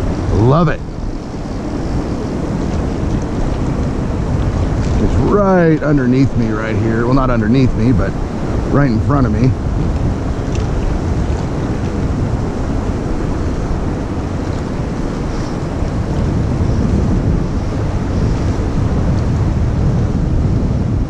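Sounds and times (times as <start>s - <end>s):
wind buffeting microphone: 0.0s - 21.0s
river water rushing over rocks: 8.0s - 18.1s.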